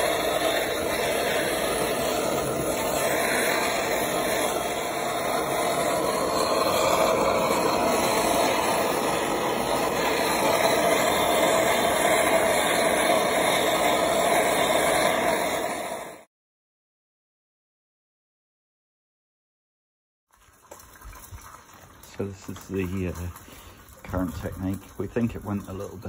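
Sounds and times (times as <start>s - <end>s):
blowtorch burning: 0.0s - 16.3s, 22.0s - 26.0s.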